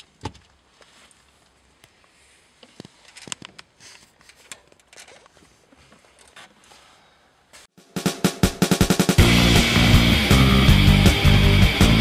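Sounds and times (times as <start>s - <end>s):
wires and plastic trim rustling: 0.0s - 6.8s
fast rock drum beat: 7.8s - 12.0s.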